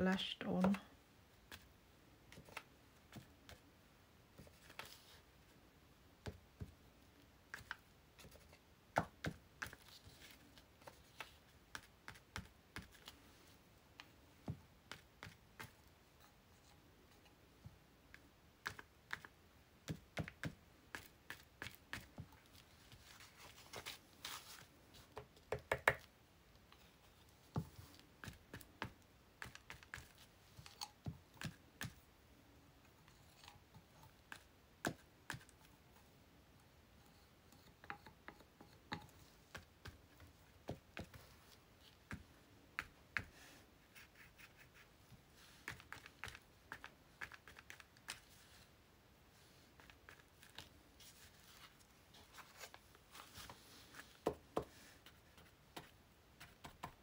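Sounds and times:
paintbrush dabbing and tapping: 7.5s - 13.2s, 13.9s - 32.1s, 33.0s - 36.0s, 36.6s - 48.6s, 53.1s - 57.0s.

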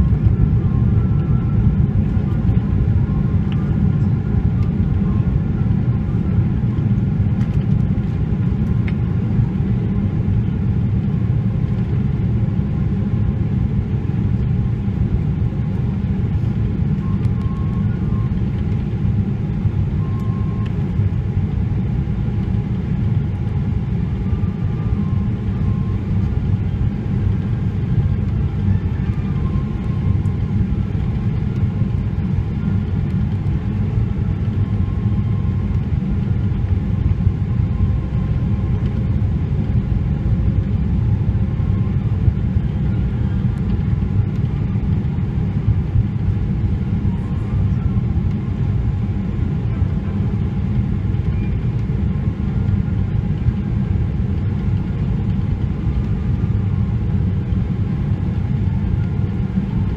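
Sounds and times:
airplane cabin engine rumble: 0.0s - 59.9s.

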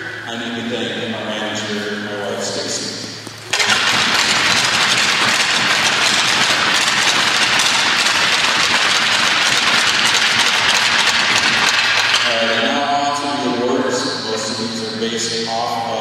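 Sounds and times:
crowd applause: 3.5s - 13.7s.

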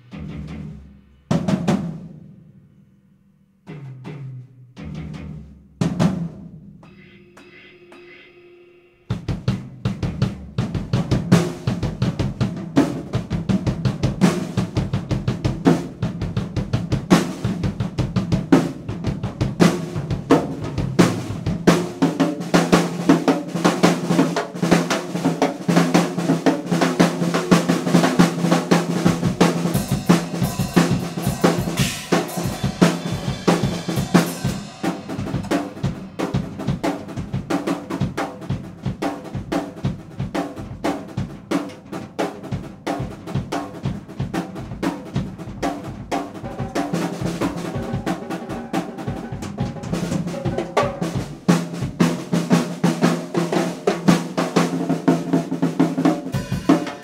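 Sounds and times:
drum kit played fast: 0.0s - 2.5s, 3.7s - 8.4s, 9.0s - 57.0s
cymbals washing: 29.6s - 37.2s, 56.3s - 57.0s.

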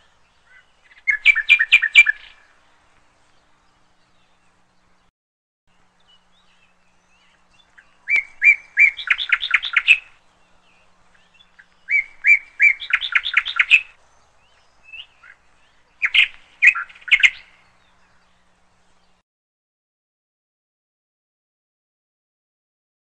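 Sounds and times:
hornbill clucking calls: 7.7s - 10.2s, 11.1s - 14.0s, 14.9s - 18.2s.

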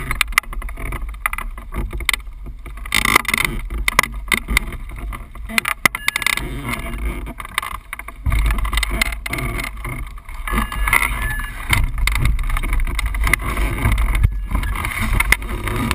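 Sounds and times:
grass brushing against camera: 3.6s - 15.9s.

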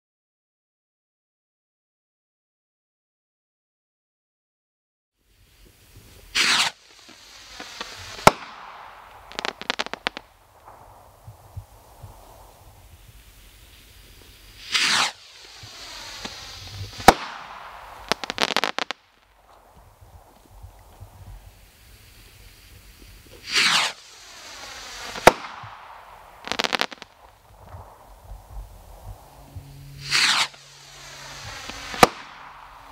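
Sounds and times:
firework crackles: 5.2s - 32.9s
rocket trail hissing: 5.2s - 32.9s
firework launch whoosh: 5.4s - 32.9s
firework bang: 6.1s - 32.9s.

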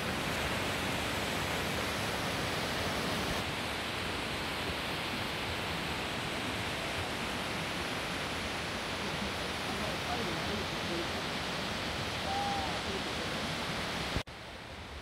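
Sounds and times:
waterfall rushing onto rock: 5.5s - 14.2s.

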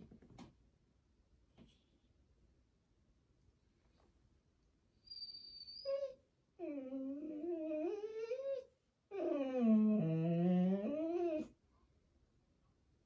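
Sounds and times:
puppy whining: 5.0s - 11.6s.

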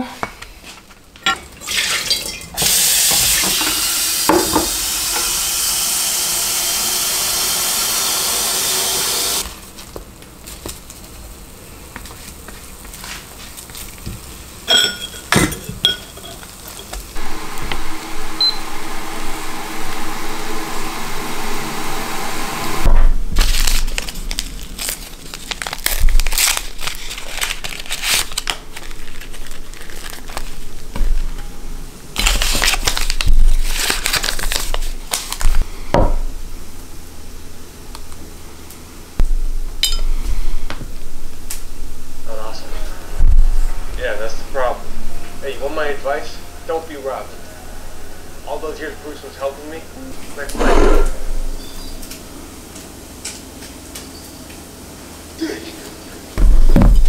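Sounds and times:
steady cooking hiss: 0.0s - 57.0s
dishes and glass clinking: 1.2s - 4.7s, 14.7s - 17.1s, 39.8s - 40.2s.

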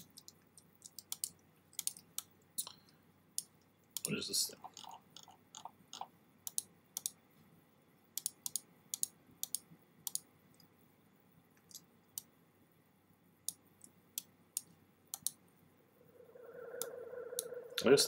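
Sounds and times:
computer mouse clicking: 0.0s - 2.8s, 4.8s - 7.2s, 8.2s - 10.7s, 13.4s - 15.4s
faint room hiss: 0.0s - 18.0s.

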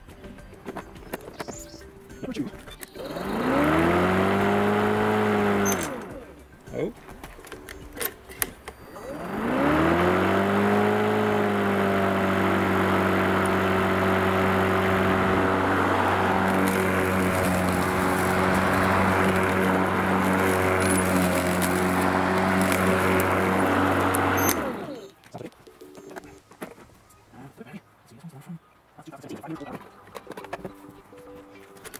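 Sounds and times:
electric lawn mower running: 2.8s - 6.6s, 7.2s - 25.2s.

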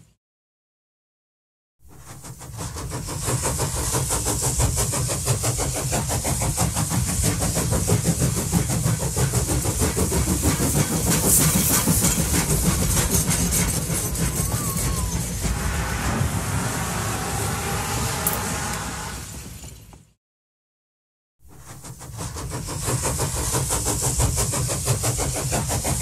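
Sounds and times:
train running rhythmically: 1.8s - 19.7s, 21.5s - 26.0s.

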